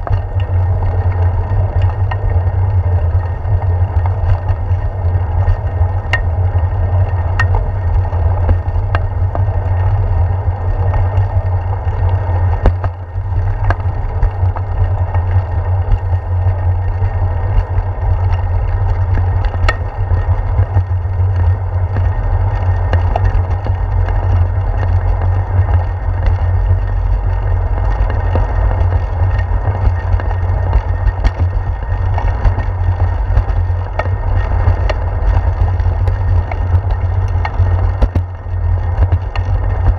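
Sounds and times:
tyre noise on pavement: 0.0 - 39.9
wind rumble: 0.0 - 39.9
ticks and knocks from bumps: 7.0 - 9.5, 10.9 - 16.2, 17.6 - 39.9.

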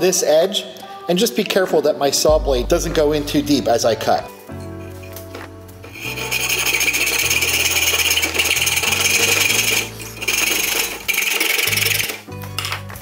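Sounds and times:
hacksaw cutting metal: 6.0 - 12.2.

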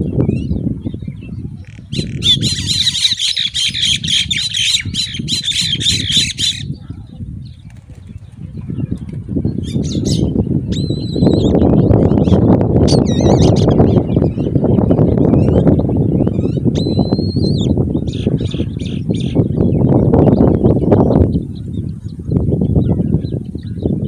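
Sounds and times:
eagles calling: 1.6 - 6.8.

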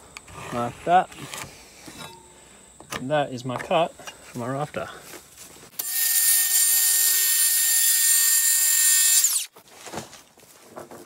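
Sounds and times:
circular saw cutting wood: 5.8 - 9.5
saw motor winding down: 5.8 - 9.5.

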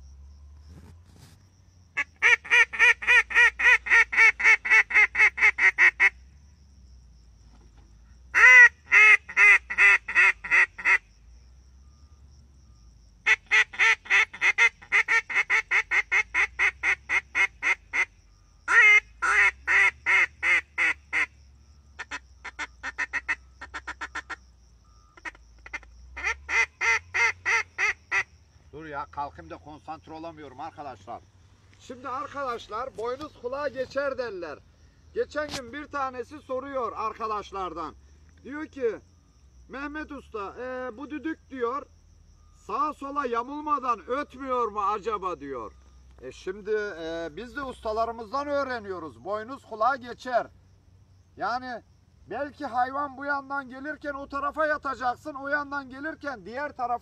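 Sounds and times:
duck call quacks: 2.0 - 6.2, 8.4 - 11.0, 13.3 - 18.1, 18.7 - 21.3, 22.0 - 24.4, 25.2 - 28.3.

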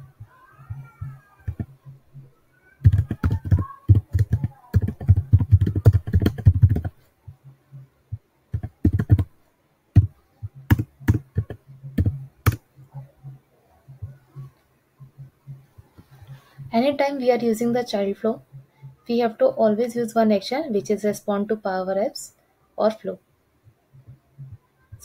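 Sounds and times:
typing on a computer keyboard: 1.4 - 1.7, 2.8 - 7.0, 8.5 - 9.3, 10.7 - 12.6.

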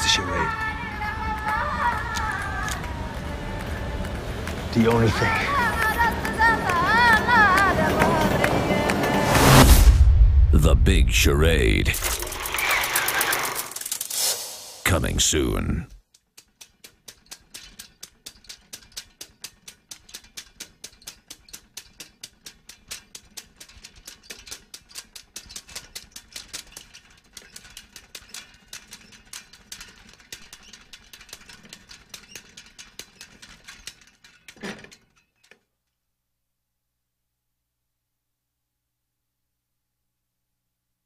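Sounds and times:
loud hit: 9.2 - 12.4.

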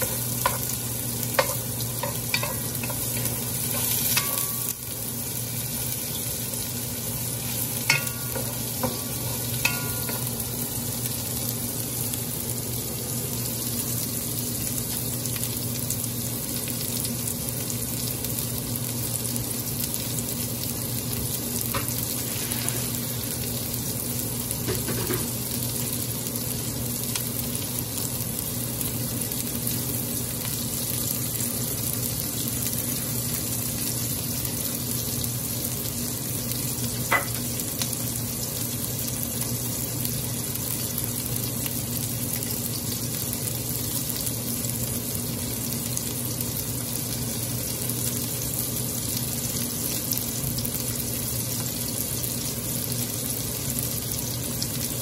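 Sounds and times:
onions sizzling in oil: 0.0 - 55.0.

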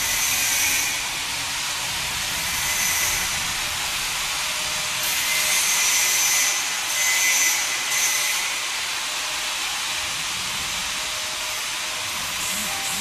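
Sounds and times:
packing machinery hissing: 9.7 - 13.0.

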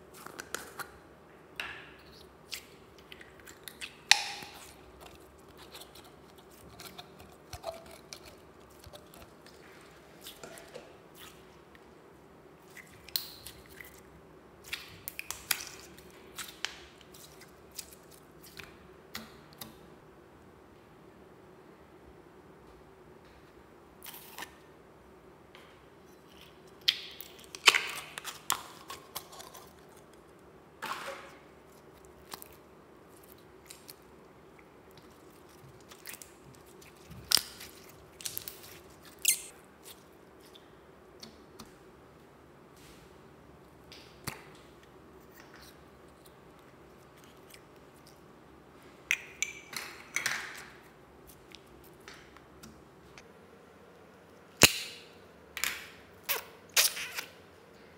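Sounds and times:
slime squishing: 2.0 - 11.8, 12.6 - 18.8, 26.1 - 30.3, 31.2 - 41.8, 43.7 - 48.3.

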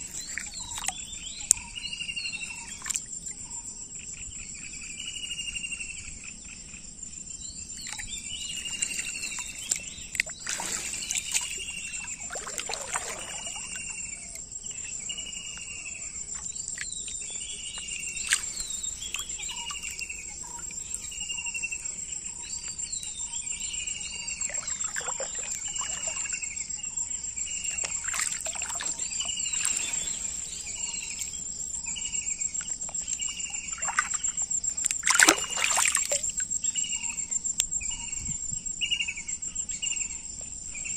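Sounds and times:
insects trilling: 0.0 - 40.9
water splashing: 7.9 - 13.9, 18.0 - 20.7, 24.5 - 26.4, 27.7 - 31.4, 33.7 - 36.4.

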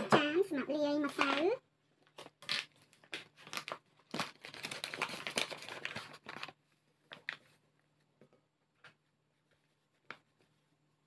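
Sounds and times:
flour bag crinkling: 2.0 - 7.6.

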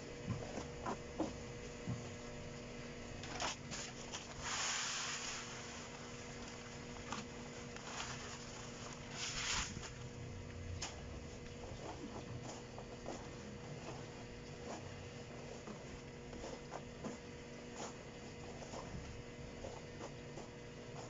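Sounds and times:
cat litter pouring with hiss: 3.3 - 10.1
hands scraping through soil: 3.5 - 6.1, 7.7 - 10.0.

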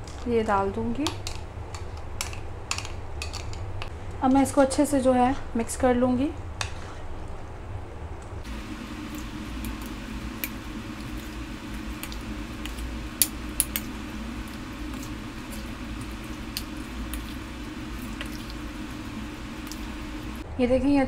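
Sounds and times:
low steady hum: 0.0 - 21.0
wet squishing of marinade: 8.6 - 20.4.

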